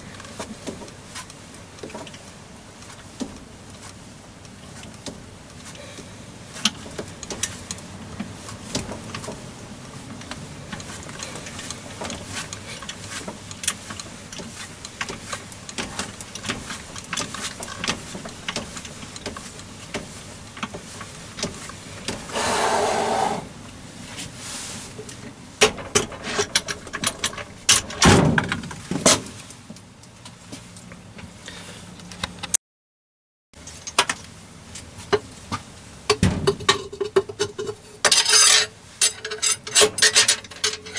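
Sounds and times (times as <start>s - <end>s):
metallic knocks and clanks: 25.6s - 29.2s.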